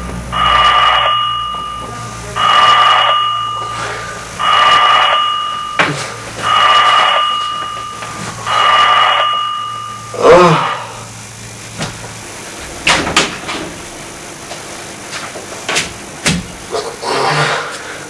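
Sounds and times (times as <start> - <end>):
buzzy two-tone electronic ring: 0.3 - 11.1.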